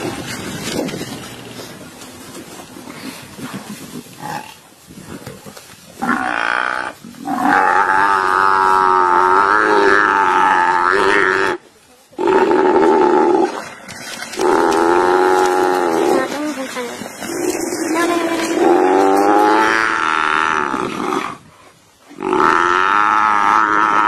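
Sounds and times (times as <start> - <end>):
buffalo bellowing in distress: 6.0 - 11.6, 14.3 - 16.4, 17.3 - 21.4, 22.2 - 24.0.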